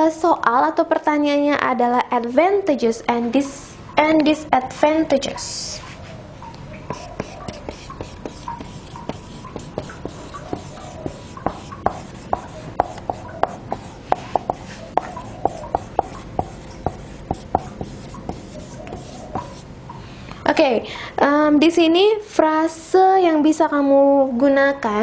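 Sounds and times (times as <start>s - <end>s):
marker writing on whiteboard: 6.9s - 19.7s.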